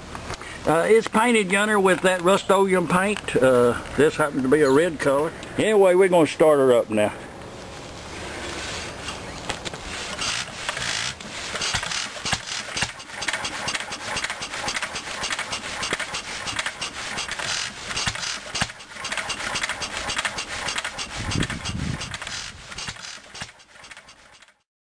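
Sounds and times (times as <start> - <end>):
flywheel spun by hand: 9.9 - 24.6
stationary engine firing unevenly: 10.0 - 24.2.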